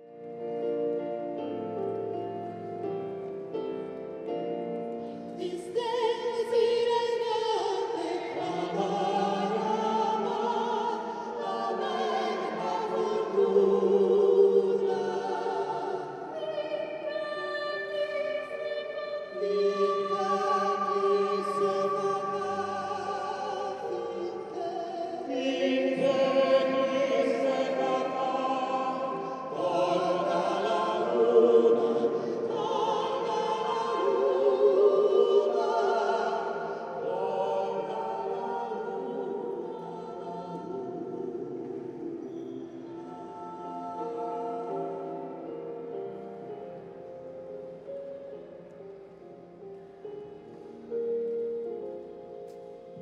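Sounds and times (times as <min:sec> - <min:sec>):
choir singing a hymn: 0:00.0 - 0:53.0
women singing lead: 0:05.2 - 0:46.6.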